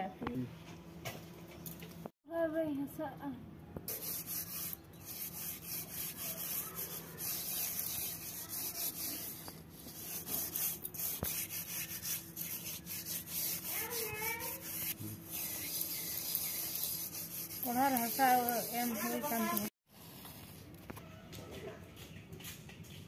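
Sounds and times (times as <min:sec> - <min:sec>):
hand rubbing mud on metal: 0:03.9 - 0:19.7.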